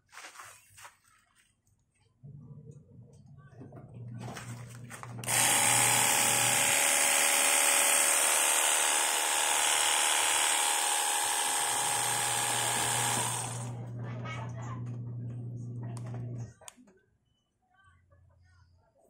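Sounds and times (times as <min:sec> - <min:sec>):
pressure washer motor and pump: 0:05.0 - 0:13.9.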